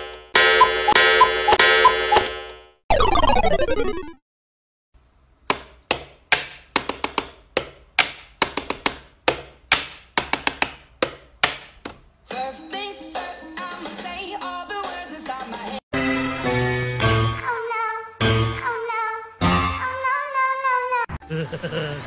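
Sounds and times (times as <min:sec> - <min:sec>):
music: 0:12.3 - 0:20.0.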